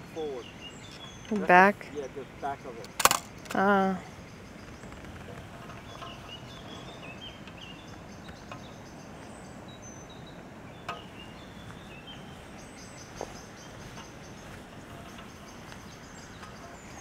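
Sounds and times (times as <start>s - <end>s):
small birds chirping: 0.0s - 17.0s
sharp click: 2.8s - 3.6s.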